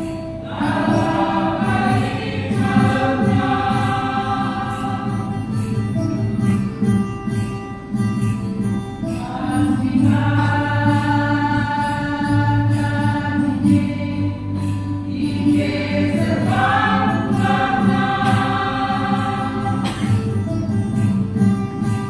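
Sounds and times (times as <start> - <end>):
choir singing held chords: 0.0 - 6.2, 9.0 - 20.8
low instrumental accompaniment: 0.0 - 22.0.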